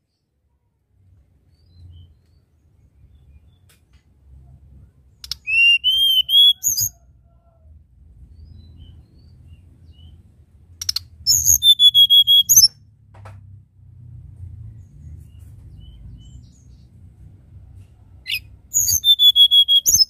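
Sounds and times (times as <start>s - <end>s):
bird singing whistled notes: 5.2s - 7.0s, 10.8s - 12.8s, 18.3s - 20.0s.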